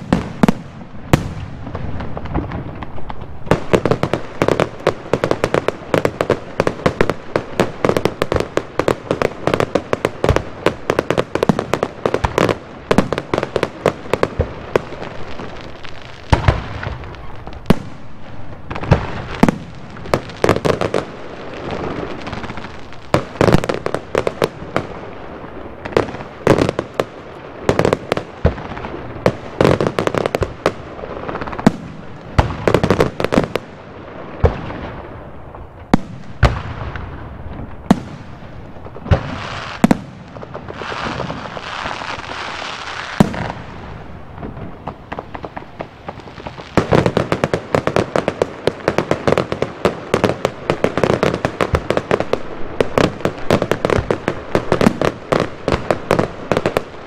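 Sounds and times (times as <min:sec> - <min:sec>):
fireworks bangs and crackles: 0:00.0 - 0:57.0
fireworks booms: 0:00.0 - 0:57.0.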